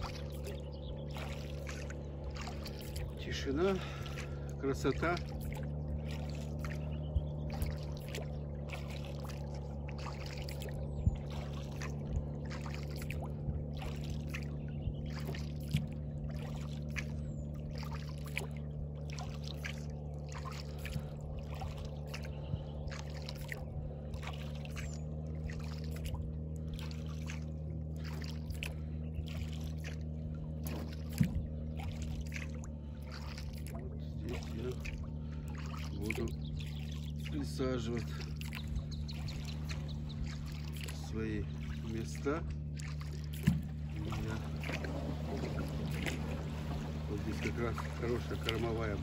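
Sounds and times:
steady low hum: 0.0s - 49.0s
water splashing and dripping: 0.0s - 49.0s
knocks on boat: 30.6s - 31.6s, 43.3s - 47.1s.

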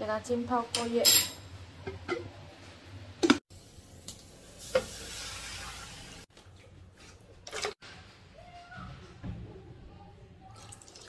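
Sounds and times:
water pouring into a wok: 4.3s - 6.3s, 10.6s - 11.0s.

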